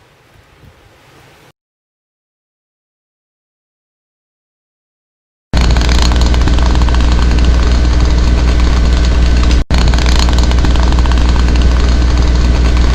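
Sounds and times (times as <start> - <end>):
loud steady low rumble: 5.6 - 12.9.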